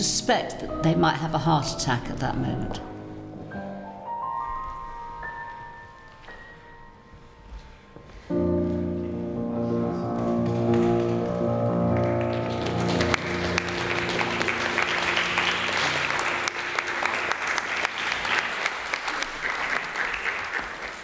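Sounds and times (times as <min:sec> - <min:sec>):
crowd applauding: 0:10.2 - 0:21.0.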